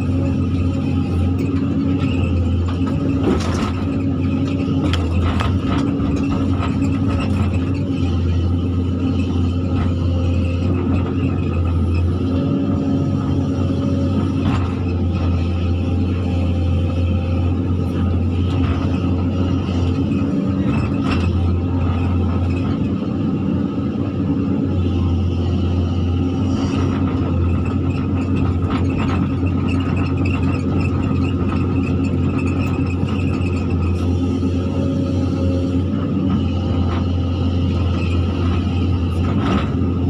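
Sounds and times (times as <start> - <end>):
excavator diesel engine running: 0.0 - 40.0.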